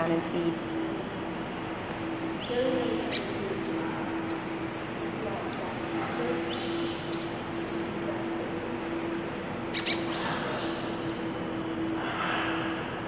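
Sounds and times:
songbirds chip calls: 0.0 - 11.8
low hum: 0.0 - 13.0.

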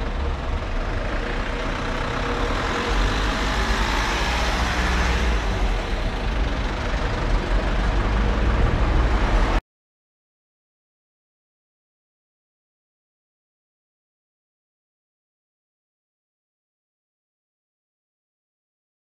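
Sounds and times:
passenger train rumbling: 0.0 - 9.6.

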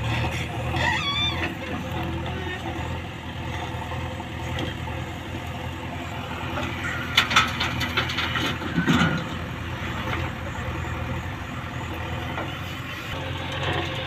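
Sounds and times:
diesel engine running: 0.0 - 14.0
metal clanks from backhoe bucket: 6.5 - 10.2.

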